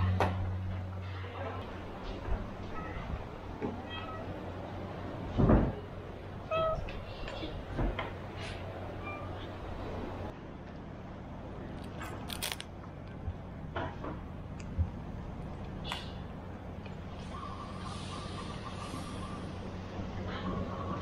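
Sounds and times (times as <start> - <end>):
cat meowing: 2.6 - 4.4, 6.4 - 7.3
brief crackle: 11.8 - 12.7.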